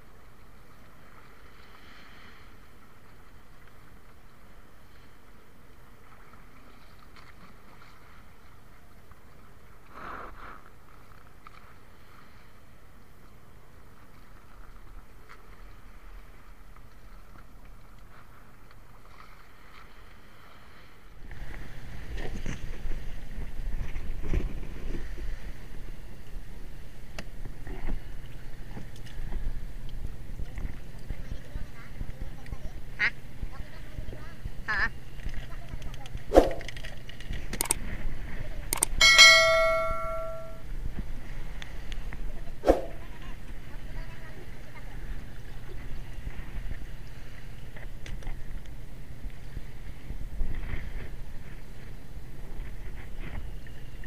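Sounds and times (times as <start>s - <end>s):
wind and sea: 0.0s - 54.0s
bright bell ding: 39.0s - 40.6s.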